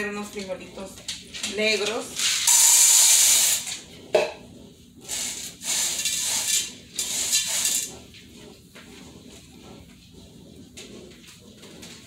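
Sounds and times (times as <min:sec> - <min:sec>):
dried beans rattling in metal pot: 0:05.1 - 0:08.1.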